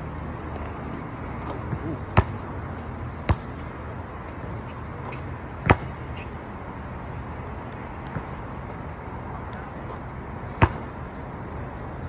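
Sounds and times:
basketball bouncing: 1.4 - 2.5, 3.2 - 3.7, 5.6 - 6.0, 10.6 - 10.9.

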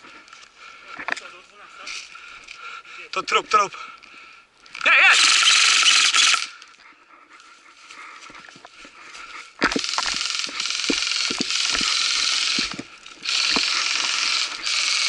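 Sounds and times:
airsoft rifle firing bursts: 5.1 - 6.5, 9.8 - 15.0.

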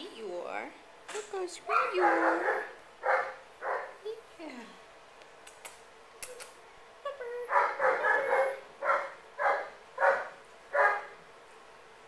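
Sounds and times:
dog barking: 1.7 - 4.0, 7.5 - 11.2.

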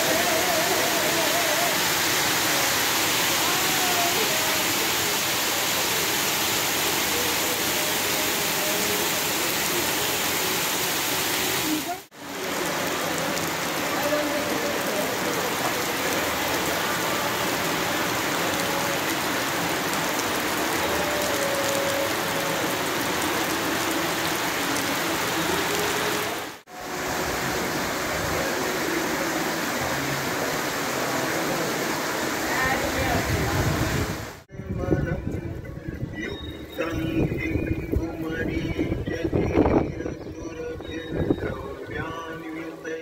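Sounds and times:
heavy rain and hail on paving: 0.0 - 34.5.

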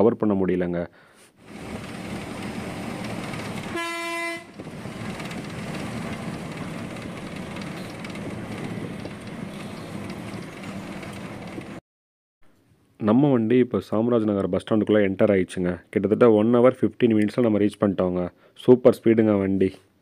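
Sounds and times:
bus engine and road rumble: 1.4 - 11.8
bus horn blast: 3.6 - 4.6.

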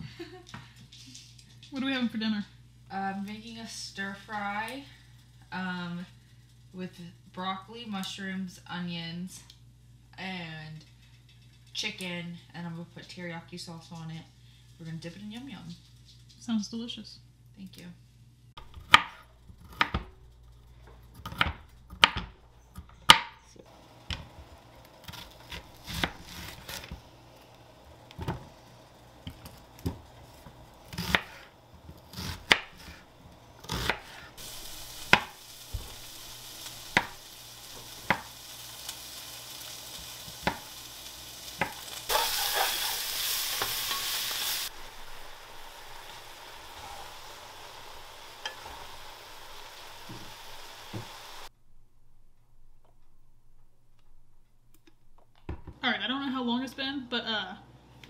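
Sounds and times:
food sizzling in frying pan: 23.6 - 51.5
knife chopping on wooden board: 30.9 - 31.4.

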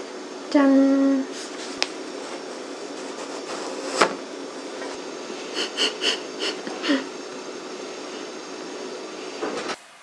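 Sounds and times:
stifled laughter: 5.5 - 7.2.

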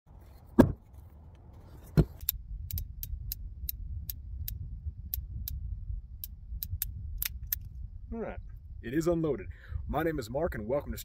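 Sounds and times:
heavy thump: 0.5 - 0.9
wind rumble on microphone: 1.5 - 11.0.

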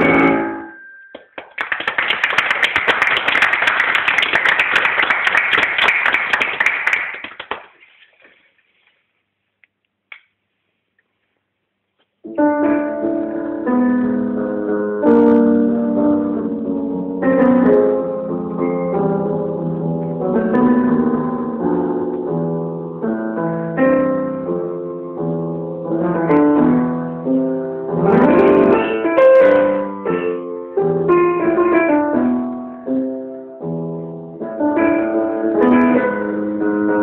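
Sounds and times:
audience applause: 1.2 - 7.8.

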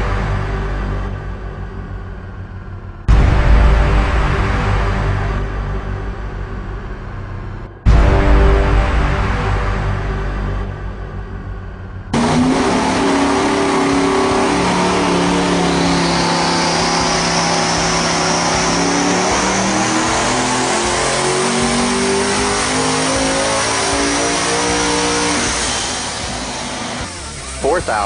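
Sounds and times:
high rising whine: 0.0 - 28.0
engine revving on dyno: 12.1 - 28.0.

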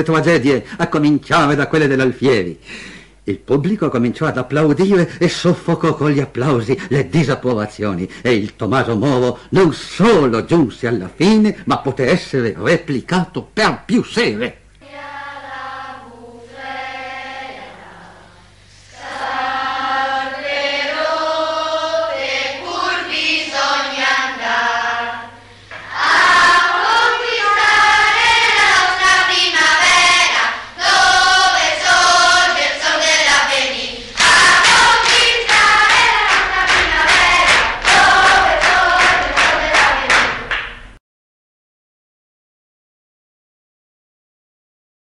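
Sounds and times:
choir singing: 14.8 - 40.5.

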